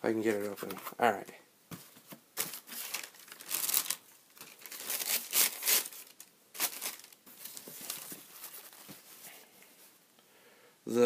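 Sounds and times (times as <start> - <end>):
tissue paper rustling: 1.8 - 9.9.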